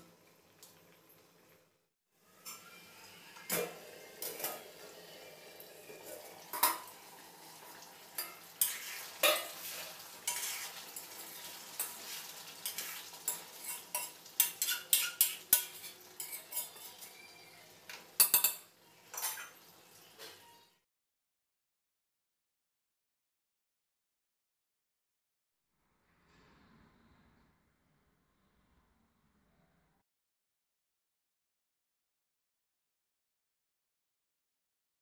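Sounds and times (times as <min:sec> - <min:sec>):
curry sizzling: 0:00.0 - 0:20.6
metal spatula scraping pan: 0:07.7 - 0:17.3.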